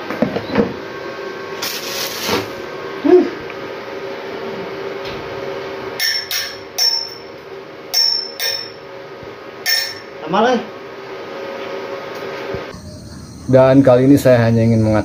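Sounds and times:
hammer striking steel frame: 0:06.0 - 0:08.8, 0:09.6 - 0:10.1
low hum: 0:12.5 - 0:15.0.

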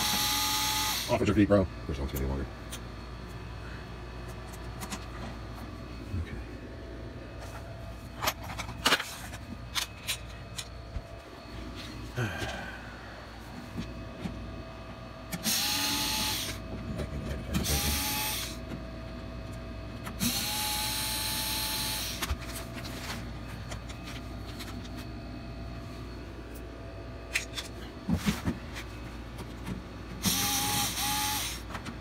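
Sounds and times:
cordless drill motor whine: 0:00.0 - 0:01.3, 0:09.6 - 0:18.7, 0:19.7 - 0:22.6, 0:30.2 - 0:31.7.

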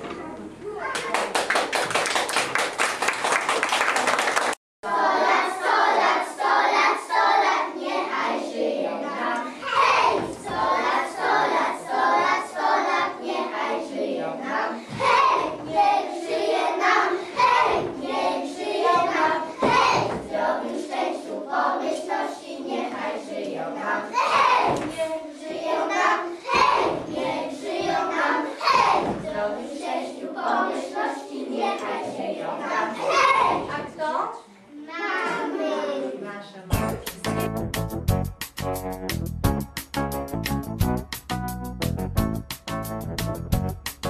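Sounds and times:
audience clapping: 0:00.9 - 0:04.6
young children singing: 0:04.8 - 0:36.3.

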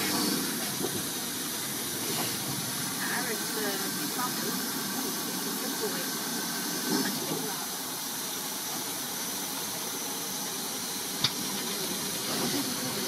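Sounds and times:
steam hissing: 0:00.0 - 0:13.0.

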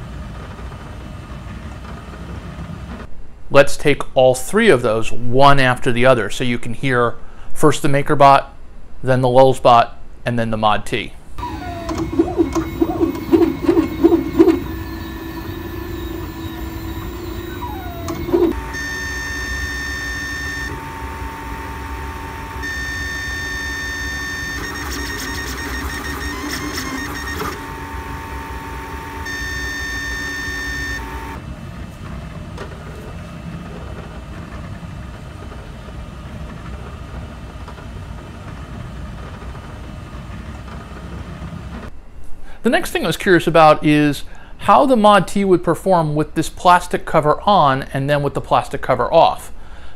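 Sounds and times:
printer motor pulses: 0:11.4 - 0:31.4
printer motor whine: 0:11.4 - 0:31.6
quiet printer whir: 0:11.4 - 0:41.9.

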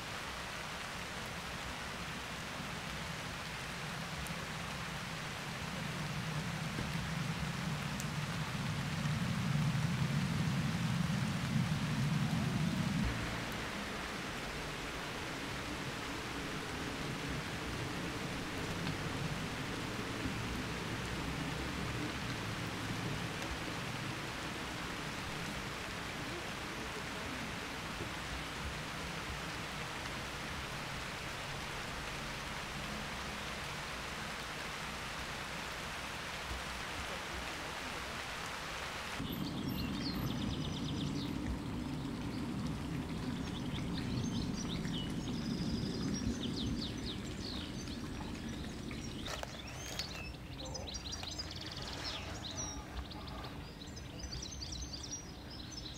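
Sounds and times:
rain falling: 0:00.0 - 0:55.9
low steady rumble: 0:02.6 - 0:35.9, 0:39.2 - 0:51.1
small birds chirping: 0:39.2 - 0:55.9.

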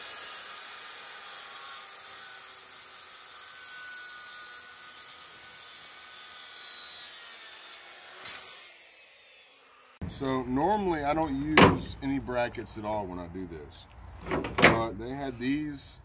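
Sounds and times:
circular saw cutting wood: 0:00.0 - 0:10.1.

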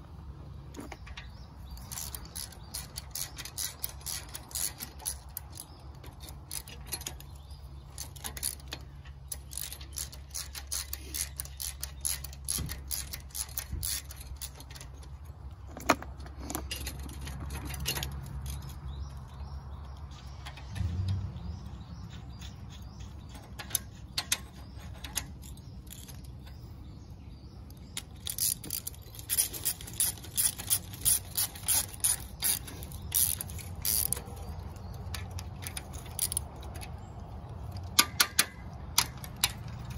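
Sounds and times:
metal clinks of nuts and bolts: 0:00.7 - 0:39.9
socket ratchet clicking: 0:00.8 - 0:15.2, 0:27.6 - 0:39.9.

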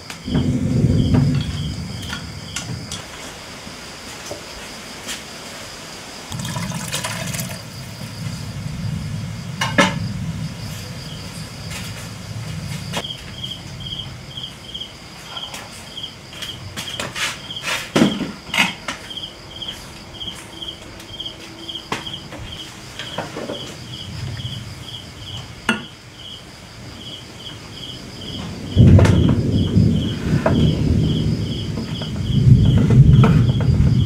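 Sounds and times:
insect chirping: 0:00.0 - 0:34.0
loud low rumble: 0:00.3 - 0:03.0.

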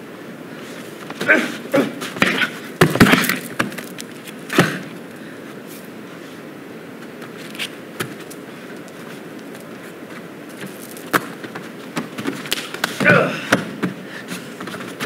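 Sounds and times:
hall background noise: 0:00.0 - 0:15.0
men grunting: 0:01.2 - 0:02.6, 0:13.0 - 0:13.7
thuds and slaps: 0:02.0 - 0:03.8.

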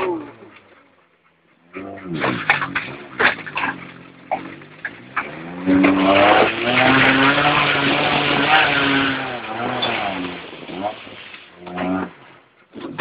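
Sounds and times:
car engine revving: 0:01.7 - 0:13.0
mud and water spattering: 0:02.2 - 0:11.6.

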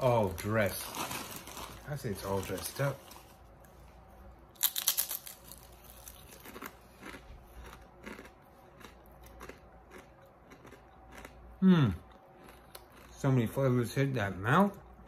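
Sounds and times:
potato chip crunching: 0:00.0 - 0:03.3, 0:04.6 - 0:11.4, 0:12.4 - 0:14.4
chewing crunch: 0:04.6 - 0:13.7.

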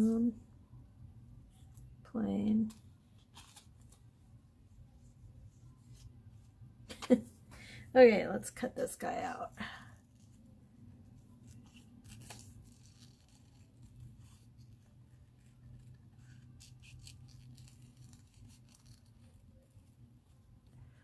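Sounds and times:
low steady hum: 0:00.0 - 0:21.0
scissors snipping paper: 0:11.5 - 0:19.8.

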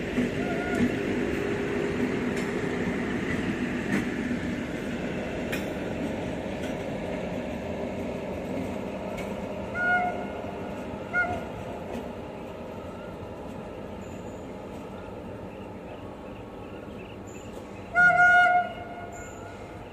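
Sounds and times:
wheels clicking over rail joints: 0:00.0 - 0:15.6
diesel train engine running: 0:00.0 - 0:19.9
rumble of train coaches: 0:00.0 - 0:19.9
train horn honk: 0:00.4 - 0:00.9, 0:09.7 - 0:11.6, 0:17.9 - 0:19.7.

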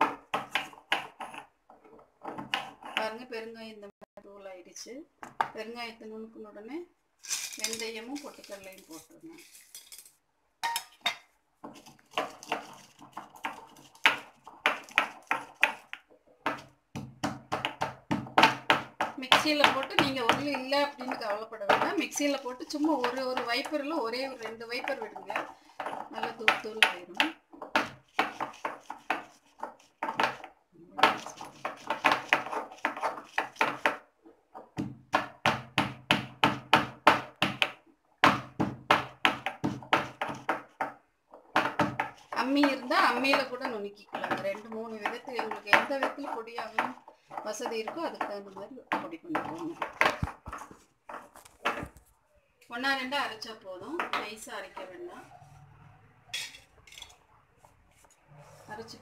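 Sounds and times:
stone pestle pounding in mortar: 0:00.0 - 0:01.5, 0:11.6 - 0:34.0, 0:34.7 - 0:50.6.

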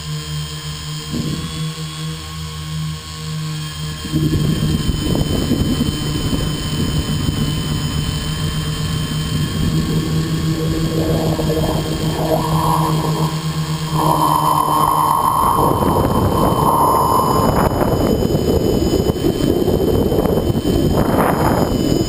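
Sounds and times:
drone motors and propellers droning: 0:00.0 - 0:22.0
rough rumble: 0:09.0 - 0:19.6.

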